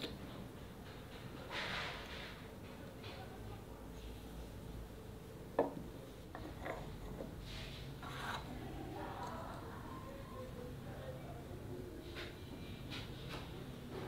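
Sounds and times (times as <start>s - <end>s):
soft scraping: 6.4s - 8.8s.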